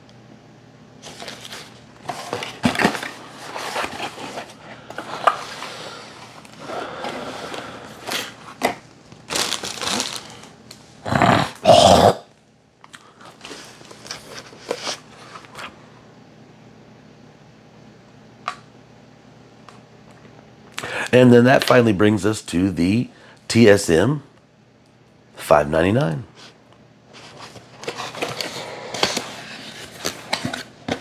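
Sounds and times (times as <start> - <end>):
rustling of cases and boxes: 1.0 - 10.5, 27.1 - 31.0.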